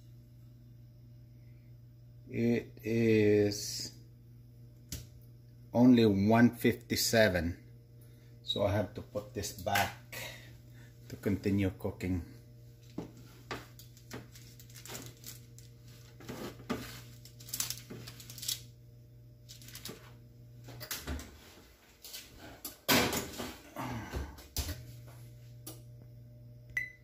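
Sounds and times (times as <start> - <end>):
baking sheet scraping and clanking: 15.8 - 18.3.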